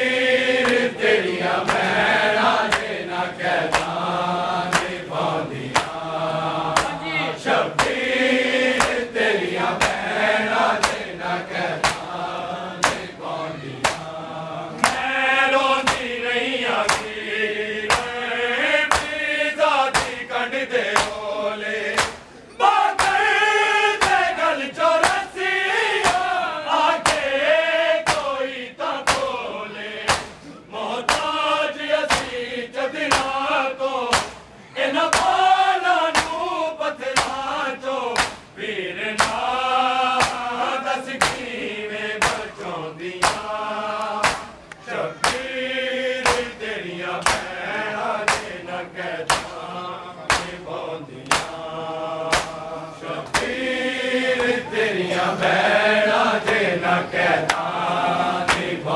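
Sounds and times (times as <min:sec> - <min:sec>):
crowd of men singing: 0:00.0 - 0:58.9
men chanting a lament: 0:00.0 - 0:58.9
hands slapping chests: 0:00.6 - 0:01.0, 0:01.6 - 0:02.0, 0:02.6 - 0:03.0, 0:03.6 - 0:04.1, 0:04.7 - 0:06.0, 0:06.7 - 0:08.0, 0:08.7 - 0:09.1, 0:09.8 - 0:10.2, 0:10.8 - 0:11.2, 0:11.8 - 0:12.2, 0:12.8 - 0:13.2, 0:13.8 - 0:14.1, 0:14.8 - 0:15.2, 0:15.8 - 0:16.2, 0:16.8 - 0:17.2, 0:17.9 - 0:18.2, 0:18.8 - 0:19.2, 0:19.9 - 0:20.3, 0:20.9 - 0:21.2, 0:21.9 - 0:22.3, 0:23.0 - 0:23.2, 0:24.0 - 0:24.3, 0:25.0 - 0:25.3, 0:26.0 - 0:26.3, 0:27.0 - 0:27.3, 0:28.0 - 0:28.4, 0:29.0 - 0:29.4, 0:30.1 - 0:30.4, 0:31.0 - 0:31.4, 0:32.1 - 0:32.4, 0:33.1 - 0:33.4, 0:34.1 - 0:34.5, 0:35.1 - 0:35.4, 0:36.1 - 0:36.4, 0:37.2 - 0:37.4, 0:38.2 - 0:38.5, 0:39.2 - 0:39.5, 0:40.2 - 0:40.5, 0:41.1 - 0:41.5, 0:42.2 - 0:45.6, 0:46.2 - 0:46.6, 0:47.2 - 0:47.6, 0:48.2 - 0:48.6, 0:49.2 - 0:49.6, 0:50.3 - 0:50.6, 0:51.2 - 0:51.6, 0:52.3 - 0:53.6, 0:54.3 - 0:55.5, 0:56.4 - 0:56.7, 0:57.4 - 0:57.7, 0:58.4 - 0:58.8.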